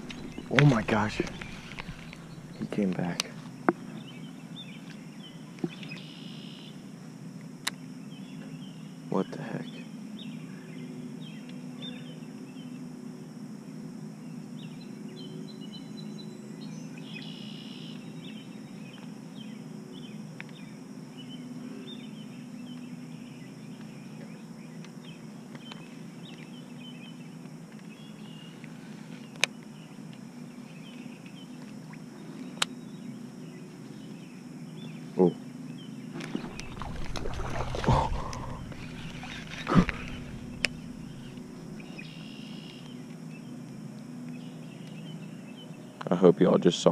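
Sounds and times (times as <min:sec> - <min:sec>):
low pondside hum: 0:00.0 - 0:46.9
fish splashing at water surface: 0:36.2 - 0:41.6.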